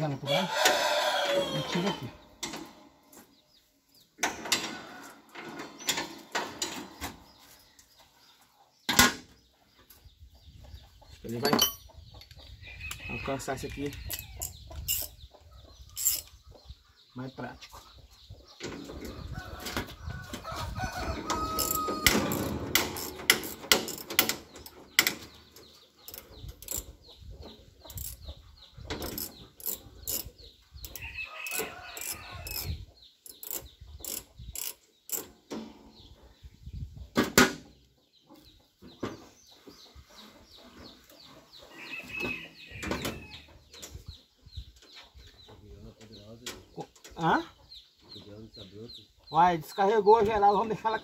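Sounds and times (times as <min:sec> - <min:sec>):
chickens clucking: 0:00.0 - 0:51.0
metal clinks: 0:11.4 - 0:11.9
ratchet wrench clicking: 0:21.6 - 0:24.3, 0:30.9 - 0:32.7, 0:33.3 - 0:35.2.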